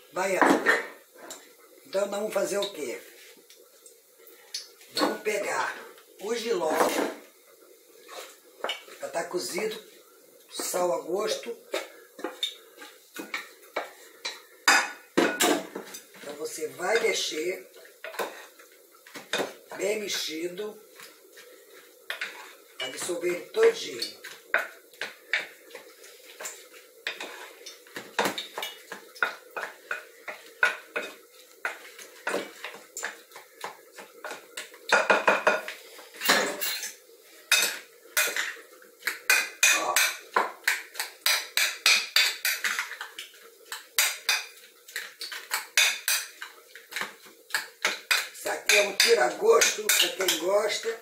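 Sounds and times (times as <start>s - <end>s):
cutlery scraping a bowl: 22.1s - 22.6s, 26.4s - 33.4s.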